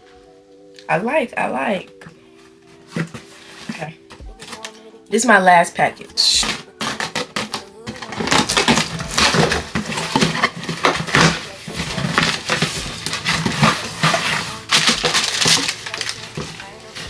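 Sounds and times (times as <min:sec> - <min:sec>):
cardboard tearing and crackling: 0:06.4 - 0:17.0.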